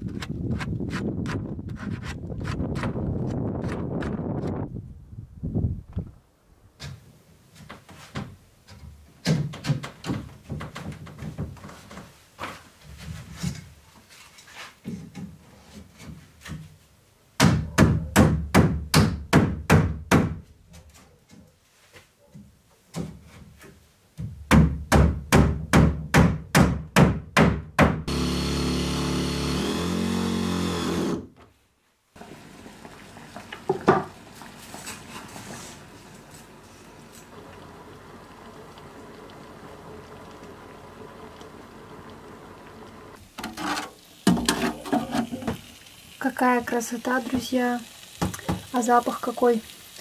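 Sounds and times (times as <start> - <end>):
hammer driving nails into wood: 24.5 - 31.3
power tool running: 28.1 - 31.3.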